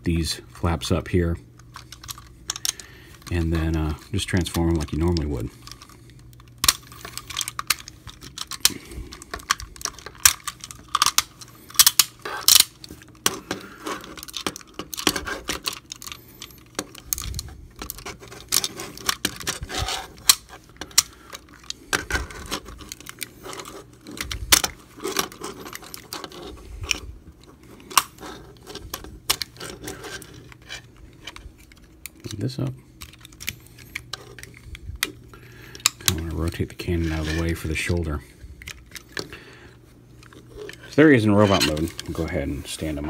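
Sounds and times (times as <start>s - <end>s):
plastic toy parts clicking: 4.5s - 27.0s.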